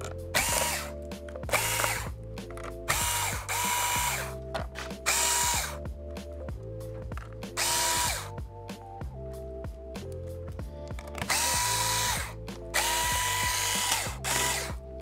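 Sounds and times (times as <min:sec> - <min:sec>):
electric screwdriver motor whine: 0:00.3 - 0:02.1, 0:02.9 - 0:04.4, 0:05.0 - 0:05.8, 0:07.6 - 0:08.3, 0:11.2 - 0:14.8.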